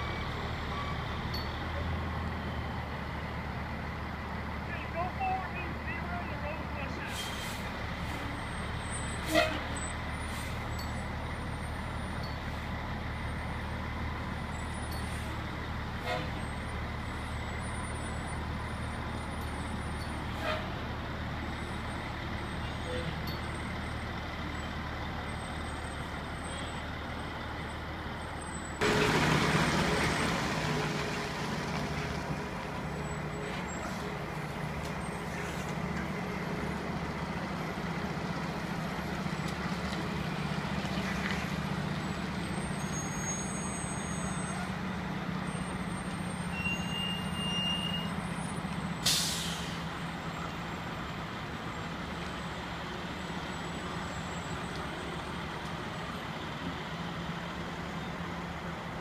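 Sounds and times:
fire truck diesel engine: 0.0s - 59.0s
air brakes hiss: 7.1s - 8.3s, 10.2s - 10.7s, 49.0s - 49.9s.

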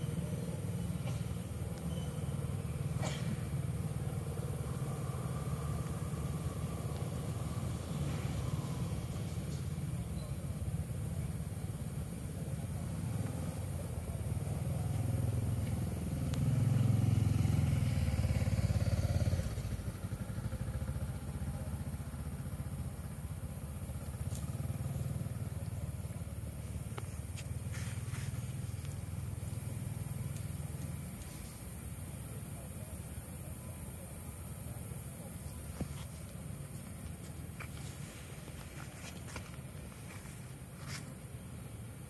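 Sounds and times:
low rumble of traffic: 0.0s - 42.0s
passing engine: 12.6s - 31.3s.

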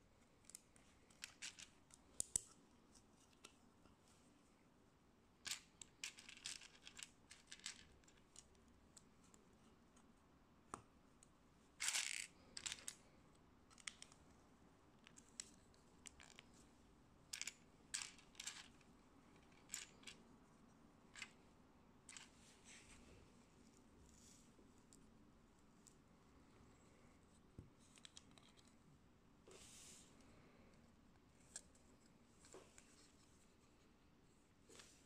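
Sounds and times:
loose pieces rattling: 1.1s - 1.8s, 5.5s - 8.2s, 11.8s - 13.0s, 17.3s - 18.8s, 19.4s - 20.2s.

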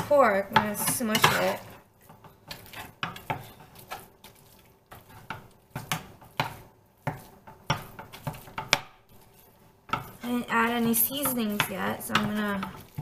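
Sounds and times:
soft wet squish of meat: 2.0s - 5.6s
spatula knocking on frying pan: 5.0s - 9.0s, 9.8s - 13.0s.

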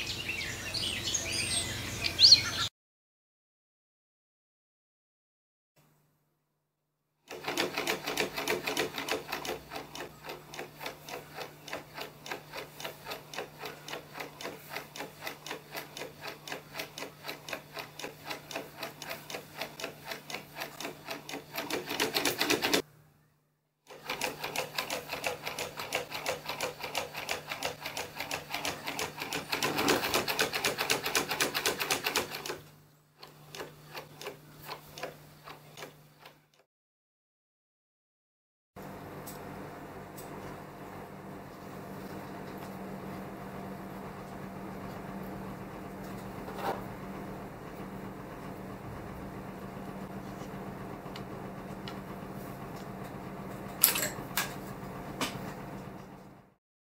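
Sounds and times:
wooden gears clacking: 23.9s - 32.6s.

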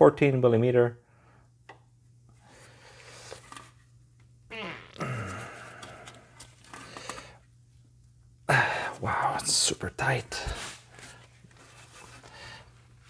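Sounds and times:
person grunting: 4.5s - 5.8s.

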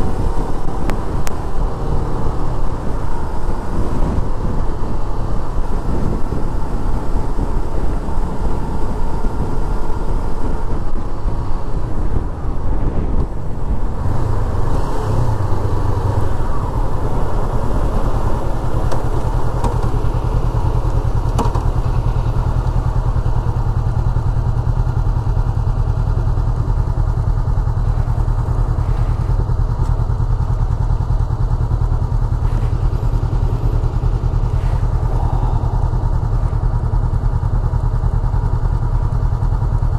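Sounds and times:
wind rushing over microphone: 0.0s - 30.4s, 31.6s - 38.0s
motorcycle engine idling: 15.3s - 39.9s.

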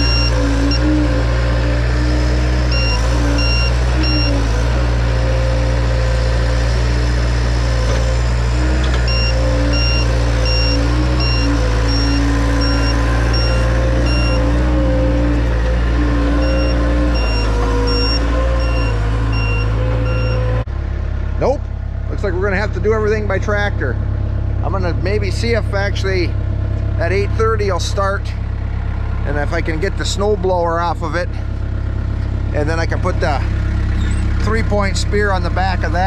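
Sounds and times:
reverse alarm beeping: 0.0s - 1.0s, 2.7s - 4.5s, 9.0s - 14.6s, 16.3s - 20.5s
skid steer engine running: 0.0s - 36.0s.

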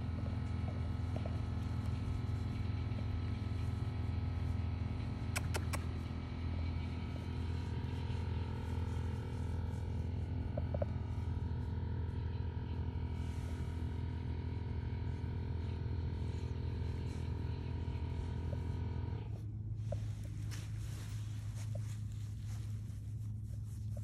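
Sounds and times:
low mechanical hum with tones: 0.0s - 24.0s
sharp clicks: 5.3s - 6.0s.

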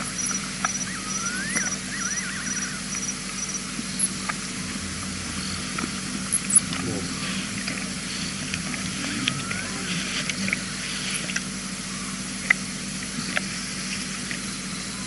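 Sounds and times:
faint high insect chirp: 0.0s - 6.7s
low hum: 0.0s - 15.0s.

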